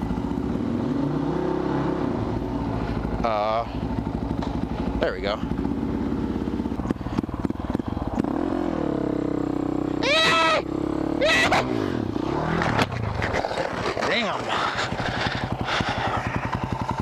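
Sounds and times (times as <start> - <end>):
motorcycle engine revving: 0.0 - 17.0
high-pitched tyre squeals: 9.9 - 11.8.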